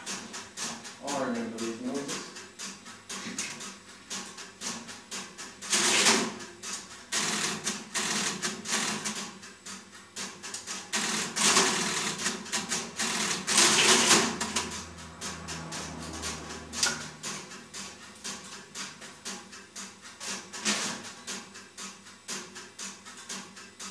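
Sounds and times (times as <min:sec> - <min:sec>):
relays clicking and clattering: 0:10.2 - 0:23.9.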